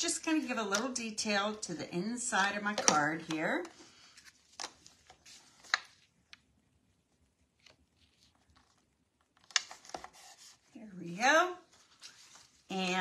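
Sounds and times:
paper rustling: 0:03.2 - 0:06.2, 0:07.4 - 0:10.7, 0:11.7 - 0:12.7.

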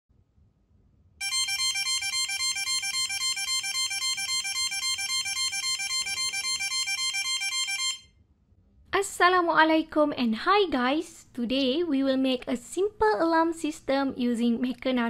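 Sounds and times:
buzzer pulsing electronic alarm: 0:01.2 - 0:08.0.

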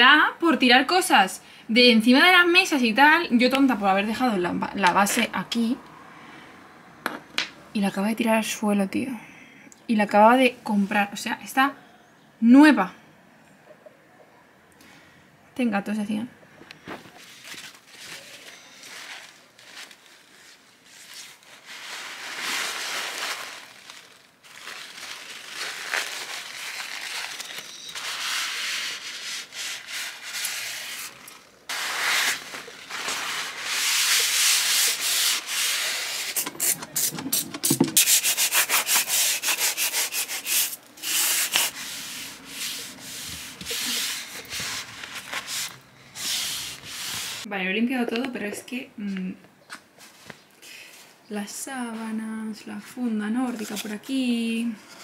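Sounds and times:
hand scrubbing a surface: 0:27.9 - 0:47.5.

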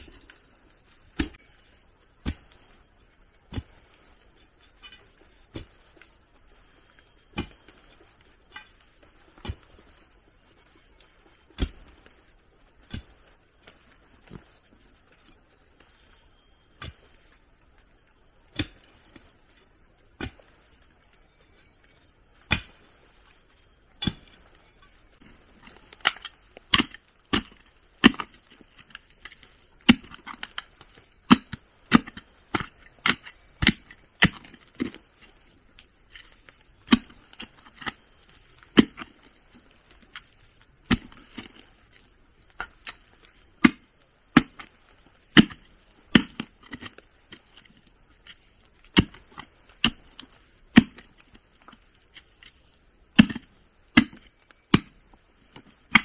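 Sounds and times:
wood being chopped: 0:01.1 - 0:01.6, 0:07.3 - 0:07.7, 0:11.6 - 0:12.0, 0:18.5 - 0:18.9, 0:22.5 - 0:22.9, 0:24.0 - 0:24.4, 0:25.7 - 0:28.4, 0:29.2 - 0:30.6, 0:31.3 - 0:35.0, 0:36.8 - 0:38.0, 0:38.7 - 0:39.2, 0:40.8 - 0:41.6, 0:43.6 - 0:44.7, 0:45.3 - 0:47.0, 0:48.8 - 0:50.0, 0:50.7 - 0:51.1, 0:53.2 - 0:56.0.

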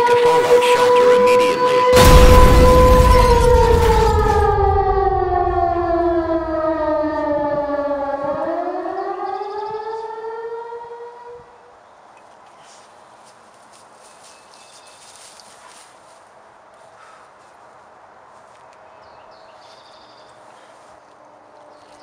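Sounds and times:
siren wail: 0:00.0 - 0:11.6
low rumble: 0:02.0 - 0:08.1.

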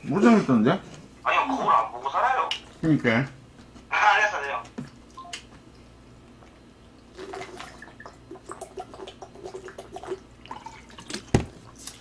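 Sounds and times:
man gulping water: 0:06.3 - 0:11.3
water gurgling in a bottle: 0:07.0 - 0:11.4.

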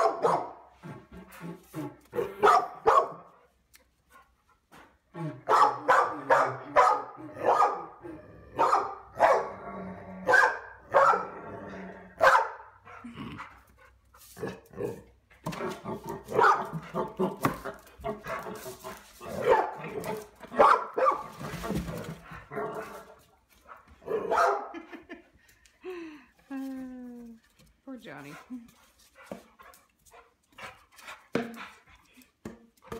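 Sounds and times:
dog barking: 0:00.0 - 0:00.6, 0:02.2 - 0:03.3, 0:05.5 - 0:08.0, 0:08.6 - 0:09.6, 0:10.2 - 0:11.3, 0:12.2 - 0:12.7, 0:16.3 - 0:18.6, 0:19.3 - 0:21.3, 0:24.0 - 0:24.8.

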